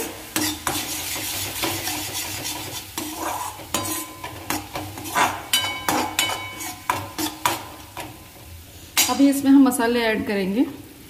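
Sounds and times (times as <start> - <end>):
metal spoon scraping a pan: 0.0 - 8.3
paste sizzling in oil: 0.0 - 9.9.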